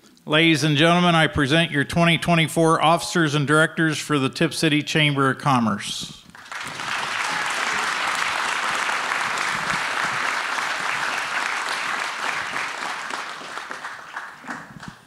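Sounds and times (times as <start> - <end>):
audience applauding: 6.4 - 15.0.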